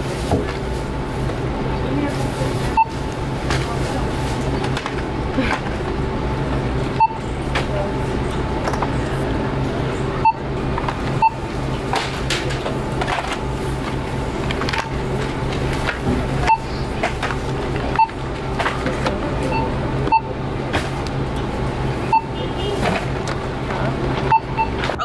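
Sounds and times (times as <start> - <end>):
barcode scanner beeping: 2.7 - 3.2, 7.0 - 7.2, 10.2 - 10.4, 11.2 - 11.4, 16.4 - 16.8, 17.9 - 18.3, 19.4 - 20.4, 22.1 - 22.4, 24.3 - 24.8.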